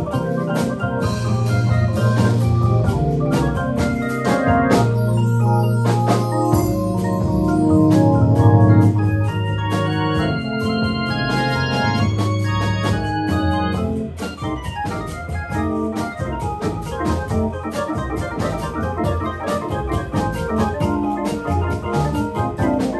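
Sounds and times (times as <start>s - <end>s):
conga hits: 0.0s - 22.9s
double bass line: 0.0s - 22.9s
drum kit: 0.0s - 22.9s
electric keyboard chords: 0.0s - 22.9s.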